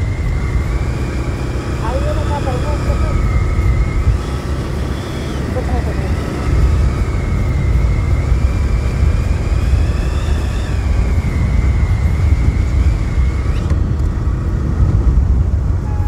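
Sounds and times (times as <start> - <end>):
motorcycle engine cruising: 0.0 - 16.0
wind rush on microphone: 0.0 - 16.0
thin high whine: 15.6 - 16.0.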